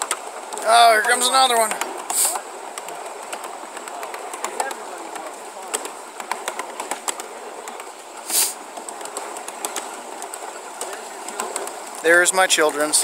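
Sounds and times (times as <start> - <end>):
miniature train running on track: 0.0 - 13.0
wheels clicking over rails: 0.0 - 13.0
short hiss: 2.1 - 2.4, 8.2 - 8.6.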